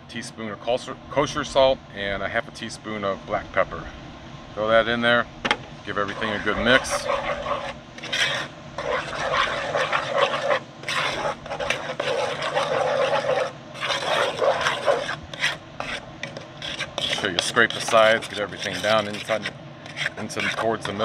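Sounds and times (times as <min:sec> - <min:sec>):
wooden spoon scraping a pot: 0:05.9 - 0:21.0.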